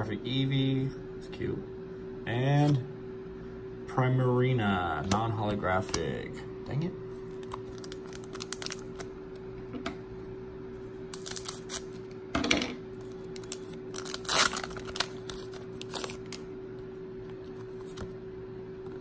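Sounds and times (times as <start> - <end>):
foil wrapper crinkling: 7.3 - 9.1, 11.1 - 12.0, 13.0 - 16.4.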